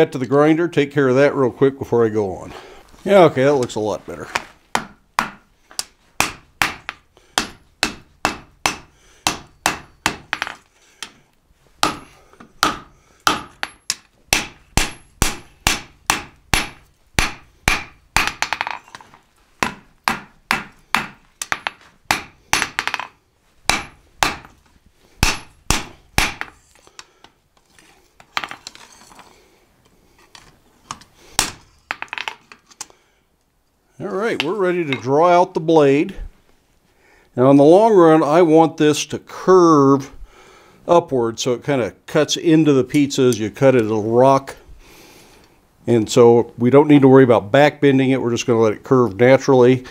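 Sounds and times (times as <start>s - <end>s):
hammer striking hot steel on anvil: 11.8s - 18.5s, 19.6s - 23.0s, 23.7s - 24.5s, 25.2s - 26.6s.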